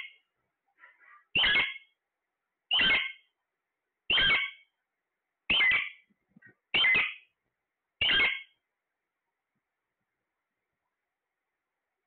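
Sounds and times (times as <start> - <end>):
faint bird chirps: 0.0 - 2.0, 2.7 - 3.4, 4.1 - 4.8, 5.5 - 7.4, 8.0 - 8.6
parakeet calling loudly: 0.9 - 2.0, 2.7 - 3.3, 4.1 - 4.7, 5.5 - 6.1, 6.7 - 7.3, 8.0 - 8.6.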